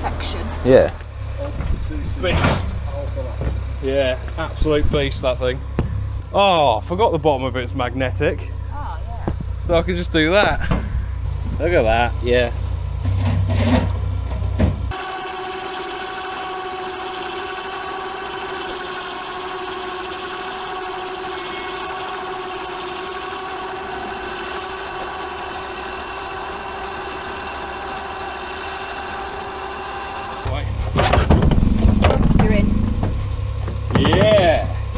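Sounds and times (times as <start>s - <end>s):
electric winch motor whining: 14.8s - 34.9s
low rumble: 30.5s - 33.7s.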